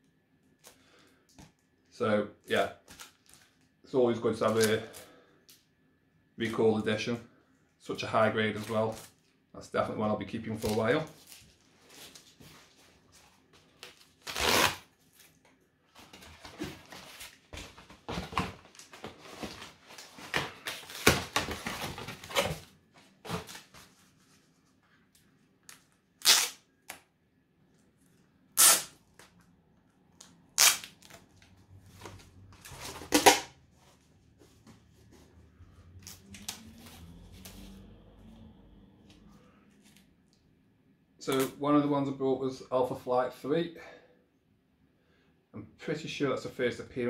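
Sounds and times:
packaging rustling and crinkling: 0:02.8 - 0:03.8, 0:10.5 - 0:24.9
packaging ripping: 0:13.8 - 0:15.4, 0:25.7 - 0:26.9, 0:28.6 - 0:29.0, 0:30.6 - 0:31.2.

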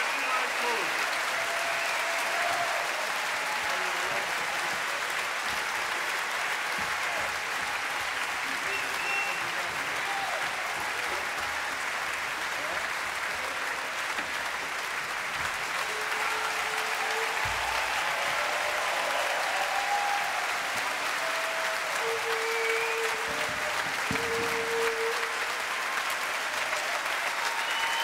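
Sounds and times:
audience applauding: 0:00.0 - 0:28.0.

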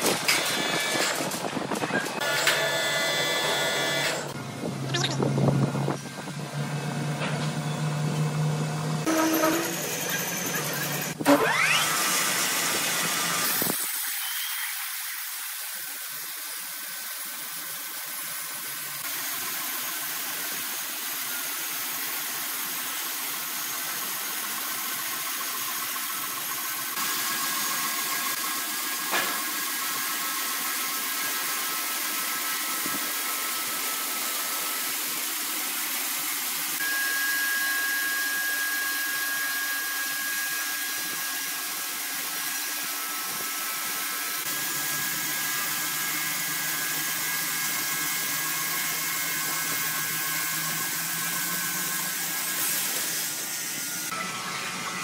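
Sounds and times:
band saw cutting wood: 0:00.0 - 0:04.4, 0:08.9 - 0:15.7, 0:23.9 - 0:55.0
thin high whine: 0:09.0 - 0:11.7, 0:36.8 - 0:50.9.

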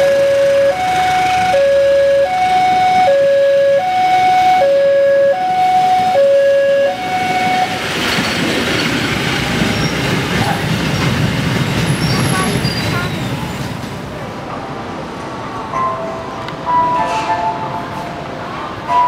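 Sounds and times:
train coaches rumbling on rails: 0:00.0 - 0:03.1, 0:06.8 - 0:19.0
two-tone crossing alarm: 0:00.0 - 0:08.2.

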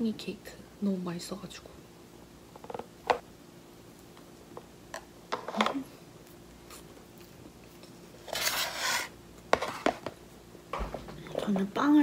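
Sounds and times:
person chewing cake: 0:06.1 - 0:08.3.

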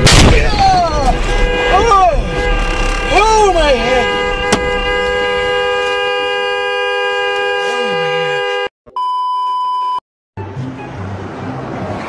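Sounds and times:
car horn blaring: 0:00.9 - 0:08.7
test-tone beep: 0:08.9 - 0:10.0.

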